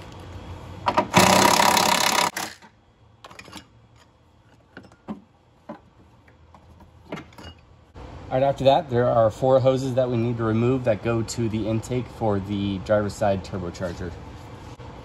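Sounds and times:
cordless power tool spinning: 0:01.1 - 0:02.6.

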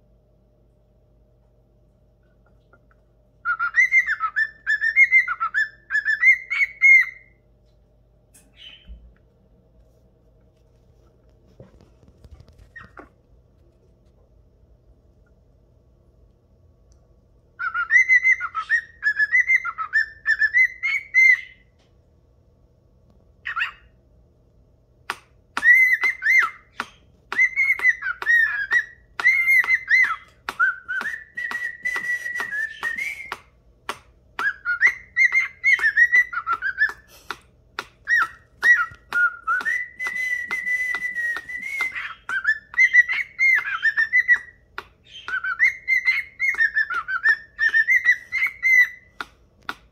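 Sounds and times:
cockatiel whistling: 0:03.4 - 0:07.4, 0:08.5 - 0:09.0, 0:17.6 - 0:21.7, 0:23.4 - 0:23.9, 0:25.1 - 0:49.8
cockatiel sharp clicks: 0:26.8 - 0:34.6.

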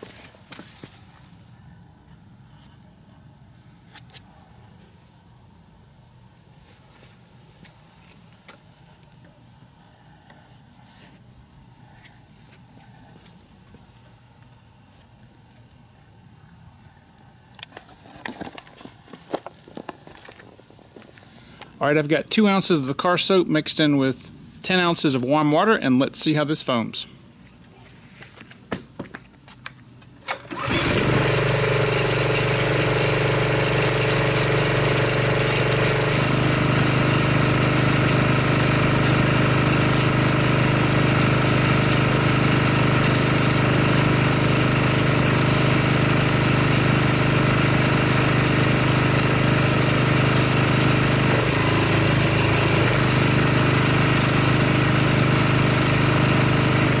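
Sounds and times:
pressure washer pump drone: 0:30.2 - 0:57.0.

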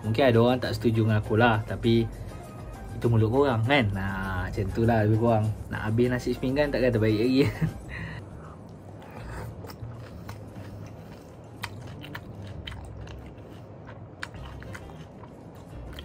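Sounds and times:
man chewing food: 0:07.7 - 0:16.0.

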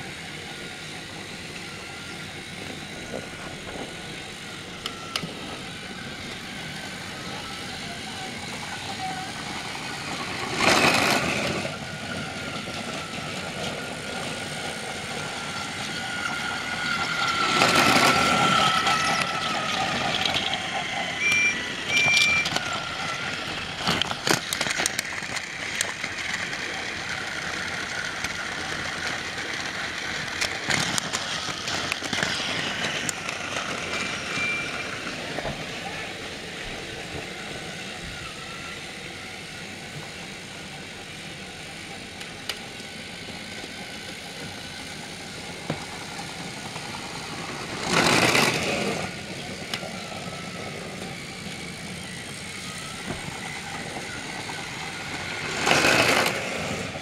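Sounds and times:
toy train motor whirring: 0:00.0 - 0:57.0
short high beeps: 0:21.2 - 0:22.6, 0:34.4 - 0:34.8
plastic trucks clattering: 0:21.3 - 0:35.8, 0:45.6 - 0:51.9, 0:53.0 - 0:57.0.

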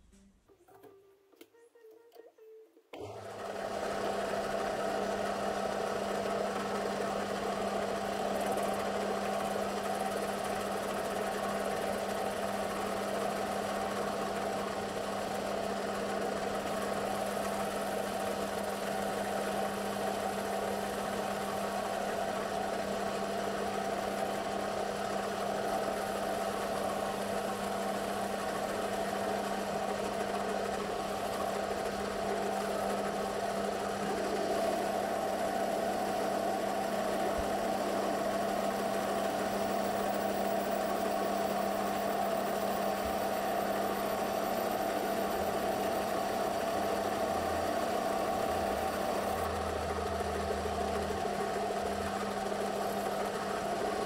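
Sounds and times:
metal lathe running: 0:21.6 - 0:54.0.

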